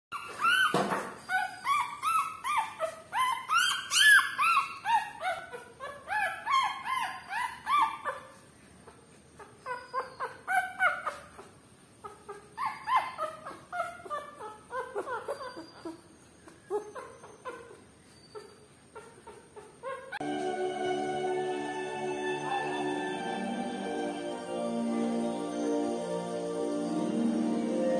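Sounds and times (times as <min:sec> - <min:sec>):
puppies whining and squealing: 0:00.1 - 0:20.4.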